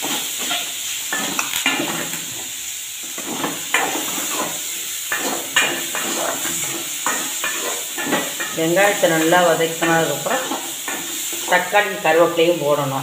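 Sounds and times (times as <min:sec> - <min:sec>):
onions sizzling: 0:00.0 - 0:13.0
metal spoon scraping metal pot: 0:03.3 - 0:08.6.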